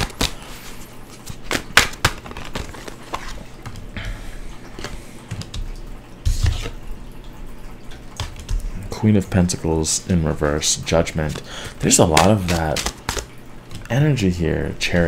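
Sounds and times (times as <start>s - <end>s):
card rustle: 0.0s - 3.8s, 11.3s - 13.3s
cards clicking and tapping: 0.0s - 3.9s, 11.2s - 13.9s.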